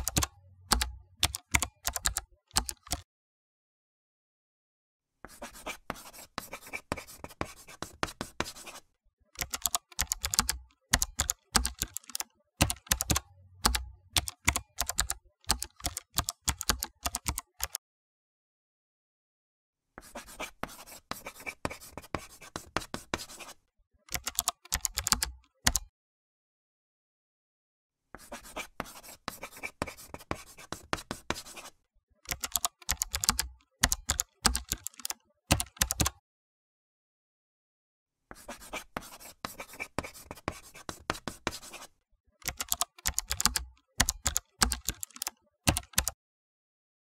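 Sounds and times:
typing on a computer keyboard: 0.0 - 3.1, 9.4 - 17.8, 24.1 - 25.9, 32.2 - 36.2, 42.4 - 46.2.

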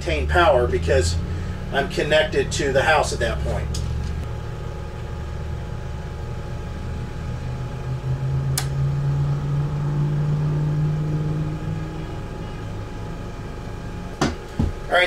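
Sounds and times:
generator engine running: 0.0 - 15.0
sharp click: 8.6 - 8.8.

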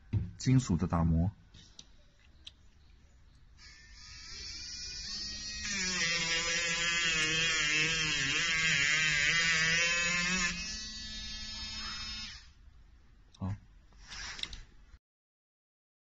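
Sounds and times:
rotary tool whining: 3.6 - 12.6, 14.0 - 14.6.

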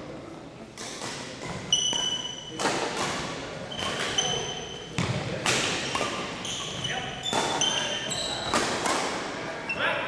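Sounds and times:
racket hits and thuds: 0.8 - 9.4
shoe squeaks: 1.6 - 2.6, 3.7 - 5.0, 5.8 - 8.6.

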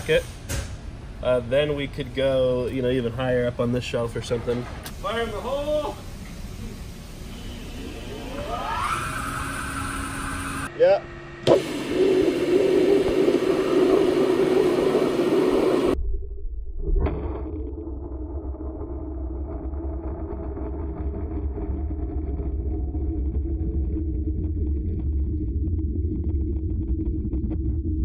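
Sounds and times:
muffled underwater rumble: 11.7 - 28.0.

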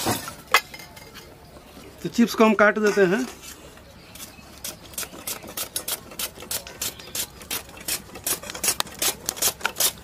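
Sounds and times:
potato rasping on a grater: 4.2 - 10.0.

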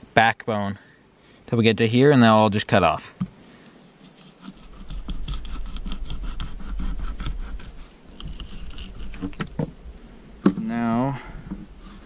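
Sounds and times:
knife scraping along fish bone: 4.1 - 9.4.

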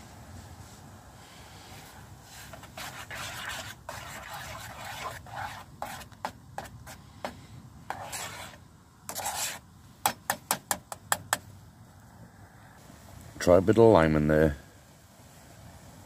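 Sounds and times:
fork scraping metal pot: 7.9 - 9.6.

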